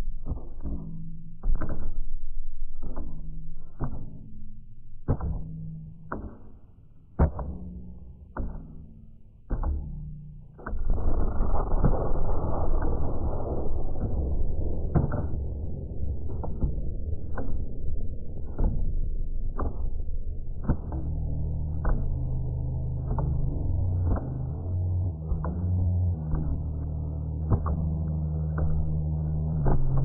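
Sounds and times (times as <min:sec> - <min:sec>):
low droning tones: 0:00.0 - 0:30.0
muffled percussive hits: 0:07.2 - 0:30.0.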